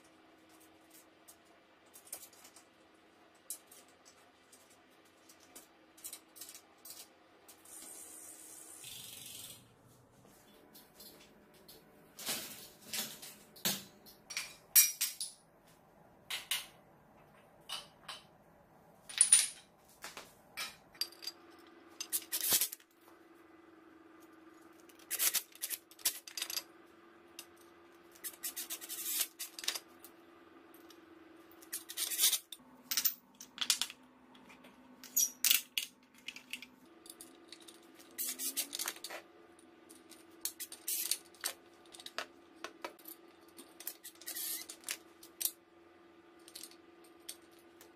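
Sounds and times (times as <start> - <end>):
metal parts clinking: 25.0 - 26.7, 35.0 - 39.2, 40.4 - 42.2, 42.9 - 45.6, 46.4 - 47.6.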